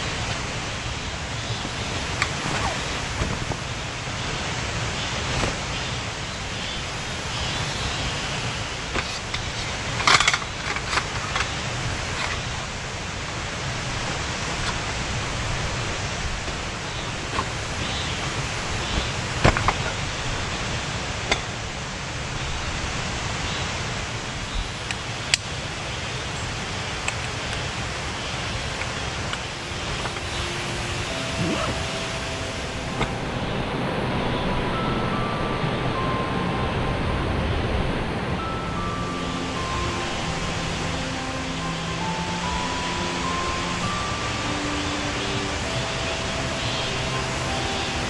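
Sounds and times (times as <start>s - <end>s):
steady rushing noise: 0.0s - 48.0s.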